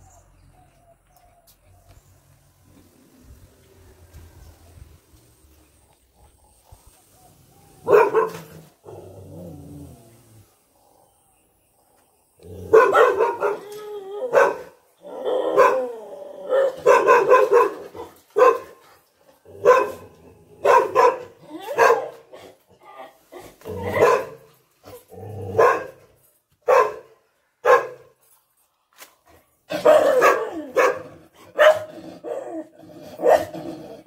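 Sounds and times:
dogs barking agitatedly: 7.8s - 9.0s, 12.6s - 13.7s, 16.5s - 22.6s, 23.4s - 28.1s, 29.7s - 33.7s.

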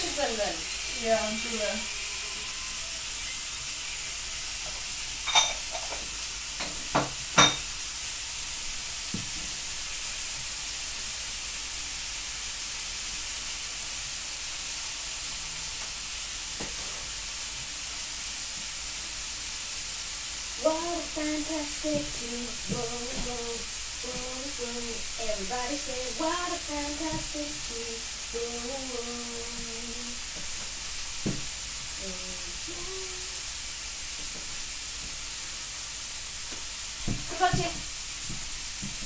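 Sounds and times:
food sizzling in a pan: 0.0s - 39.0s.

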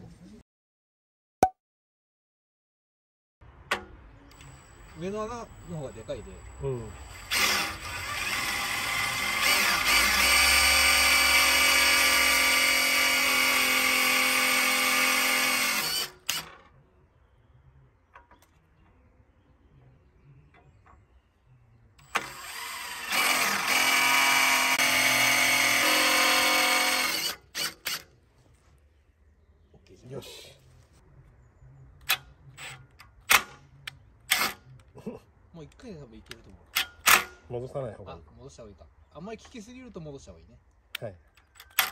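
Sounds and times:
power drill running: 6.4s - 16.5s, 22.0s - 28.0s.

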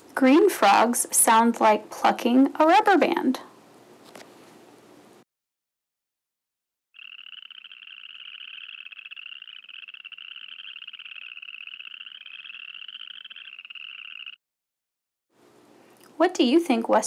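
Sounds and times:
frogs trilling: 7.0s - 14.4s.

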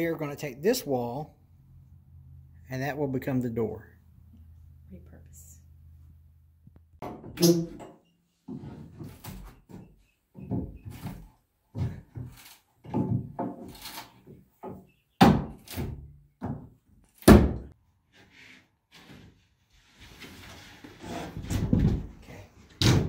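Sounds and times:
hammer knocking on wooden paneling: 7.0s - 7.4s.

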